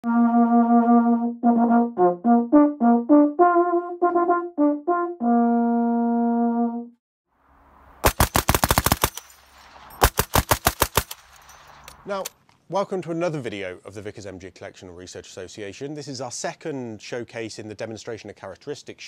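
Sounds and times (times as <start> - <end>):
brass instrument tune: 0.0 - 7.0
machine-gun fire: 8.0 - 11.5.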